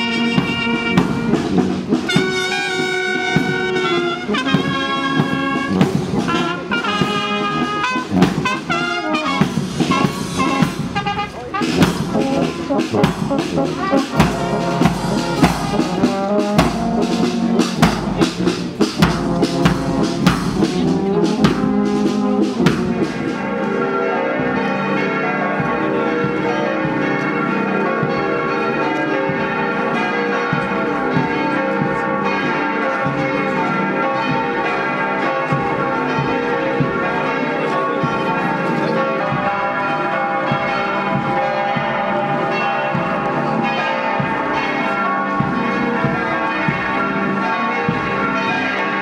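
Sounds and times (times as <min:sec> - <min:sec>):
church bells pealing: 0:00.0 - 0:49.0
marching brass band playing: 0:00.0 - 0:49.0
bass drum strokes: 0:09.4 - 0:23.4.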